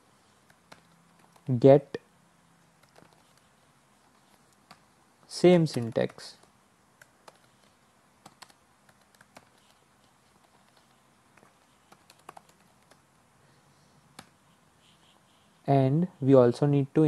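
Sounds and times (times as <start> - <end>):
keyboard typing: 0.4 - 1.6, 2.6 - 4.9, 5.6 - 13.2, 14.1 - 15.2.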